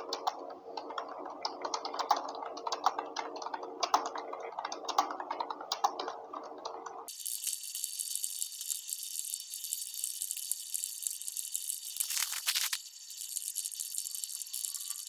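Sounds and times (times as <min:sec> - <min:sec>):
laptop keyboard typing: 0:00.0 - 0:07.2, 0:12.0 - 0:12.8.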